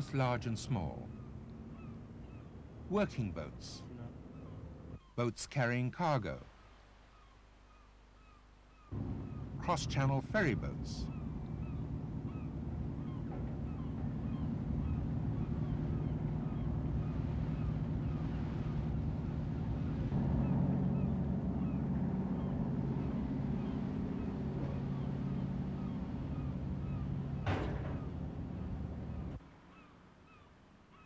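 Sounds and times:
ship engines droning: 8.9 - 30.2.

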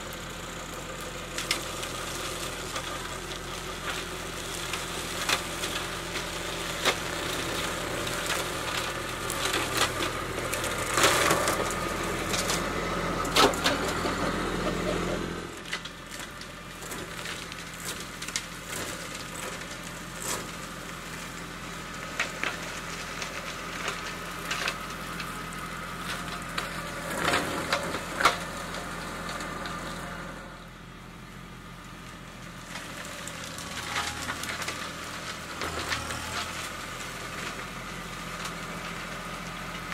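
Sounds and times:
flail mower shredding brush: 0.0 - 39.9
tractor diesel engine running: 0.0 - 39.9
wood cracking and snapping: 4.6 - 14.4, 15.6 - 21.4.

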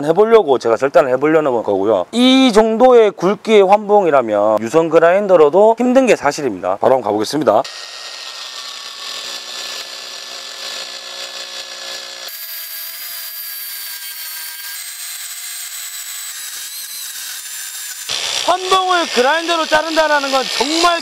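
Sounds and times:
angle grinder cutting steel: 7.6 - 21.0.

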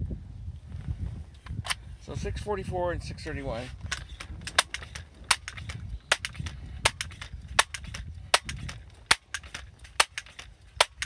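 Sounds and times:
air rifle pump clacks: 3.6 - 11.0
low rumble of pump lever: 3.7 - 11.0.

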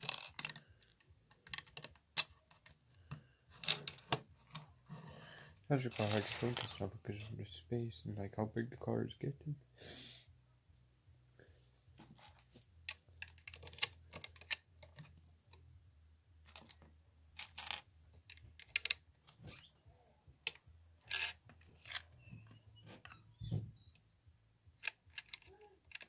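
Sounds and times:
plastic bricks clicking and clattering: 0.0 - 4.2, 5.9 - 6.8, 12.9 - 15.2, 16.4 - 19.4, 20.4 - 22.0, 24.8 - 26.0.

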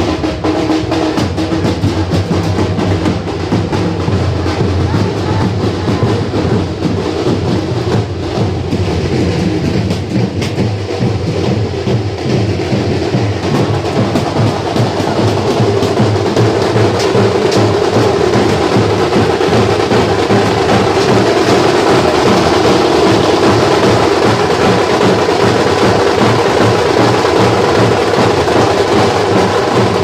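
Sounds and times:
street drum band: 0.0 - 30.0.

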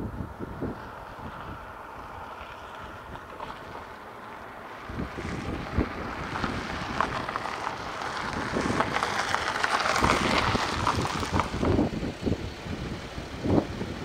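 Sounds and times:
wind buffeting microphone: 0.0 - 14.0
tyres crunching on gravel: 0.6 - 14.0.

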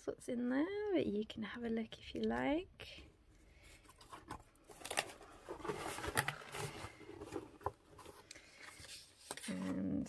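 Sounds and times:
cardboard box handled: 3.9 - 9.4
paper rustling: 3.9 - 10.0.

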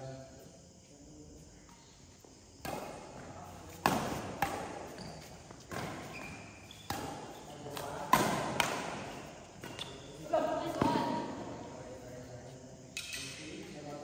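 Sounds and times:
rackets hitting shuttlecock: 2.6 - 10.0.

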